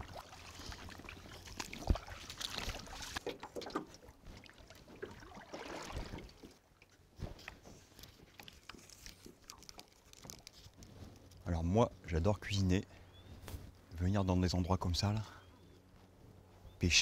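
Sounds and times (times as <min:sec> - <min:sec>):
water lapping at shore: 0:00.0 - 0:11.2.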